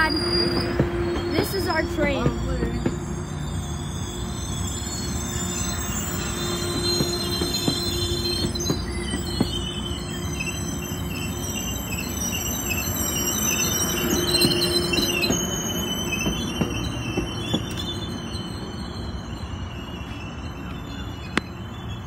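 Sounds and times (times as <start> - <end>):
high wheel squeal: 0.0 - 22.0
train wheels rumbling on rail: 0.0 - 22.0.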